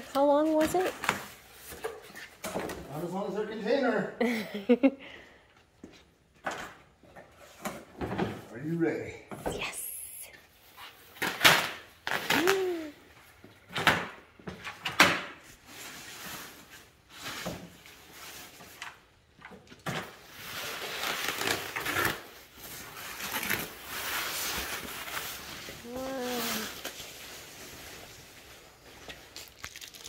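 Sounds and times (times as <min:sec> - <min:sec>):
plastic wrapping rustling: 0:20.2 - 0:30.0.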